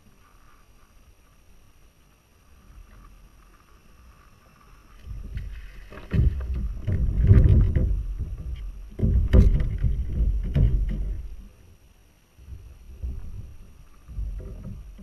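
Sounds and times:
low rumbling: 4.8 - 15.0
knocks in a kayak: 5.2 - 11.5.

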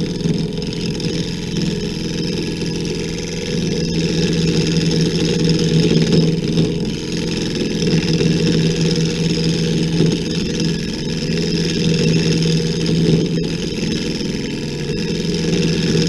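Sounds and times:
lathe motor hum: 0.0 - 16.0
tool cutting spinning wood: 0.0 - 16.0.

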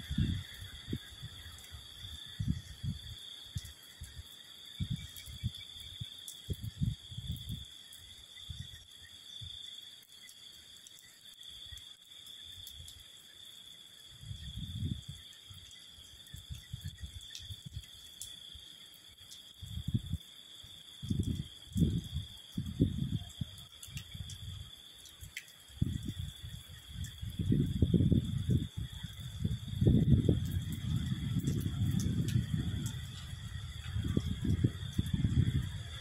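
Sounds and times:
wind buffeting microphone: 0.0 - 7.7, 14.2 - 15.3, 19.6 - 20.2, 21.0 - 24.7, 25.8 - 36.0
insects chirring: 0.0 - 36.0.

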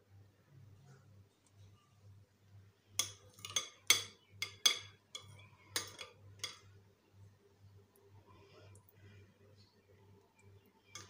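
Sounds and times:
metal spoon clinking glass bowl: 3.0 - 6.6.

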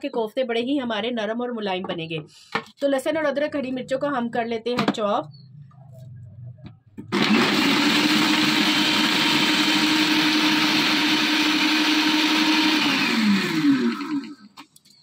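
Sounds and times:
food chopper motor whine: 7.1 - 14.6.

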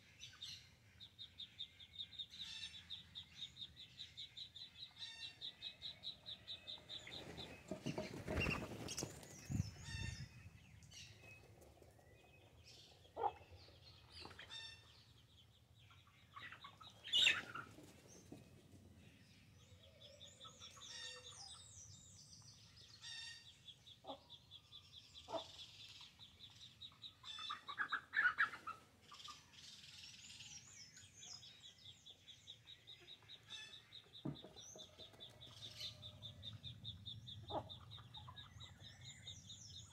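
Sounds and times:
chickens clucking: 7.0 - 9.3, 11.4 - 14.6, 16.3 - 18.5, 26.9 - 29.4, 32.9 - 38.9.

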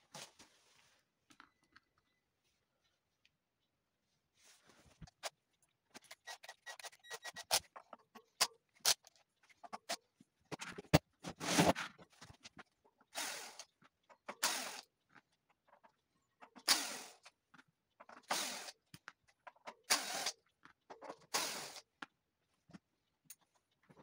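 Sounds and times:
cordless drill spinning: 13.1 - 13.7, 14.4 - 14.9, 19.9 - 20.4.

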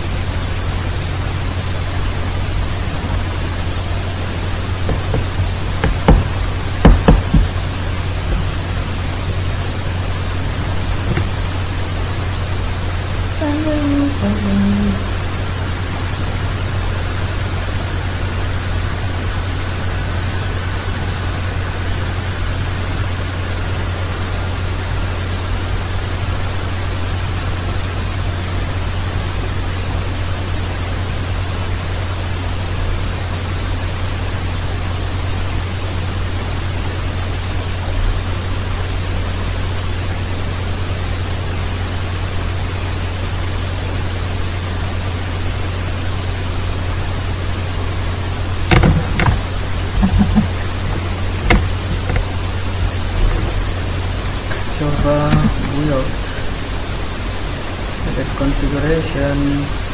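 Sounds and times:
low electrical hum: 0.0 - 59.9
steady hiss: 0.0 - 59.9
faint high tone: 13.4 - 15.2.

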